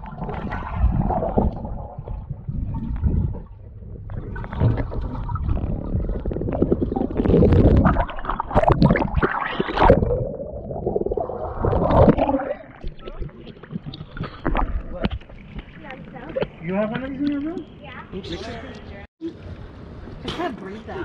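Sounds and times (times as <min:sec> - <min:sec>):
muffled underwater gurgling: 0:00.0 - 0:16.6
water splashing and sloshing: 0:00.0 - 0:21.0.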